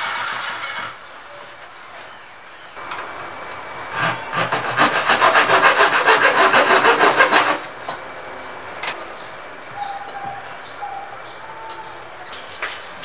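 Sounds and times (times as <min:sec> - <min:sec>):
hand tool rasping acrylic edge: 0:04.0 - 0:07.7.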